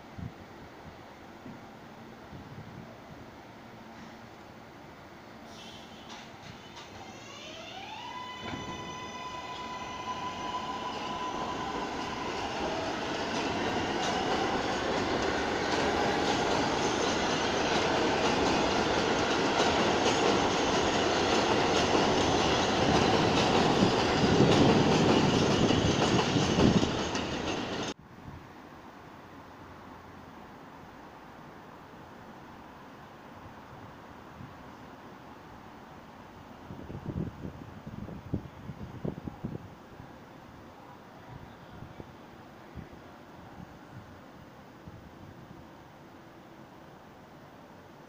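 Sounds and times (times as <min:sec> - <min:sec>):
wheels rumbling on rails: 0:08.4 - 0:28.0.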